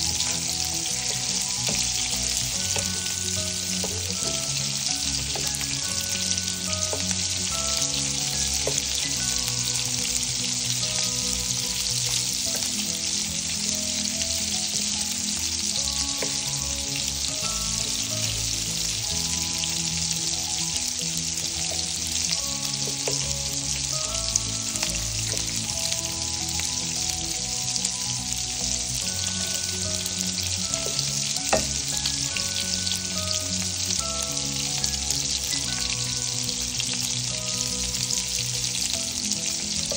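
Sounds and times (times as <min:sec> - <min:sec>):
sausage sizzling in frying pan: 0:00.0 - 0:39.9
spatula knocking against pan: 0:30.8 - 0:31.8.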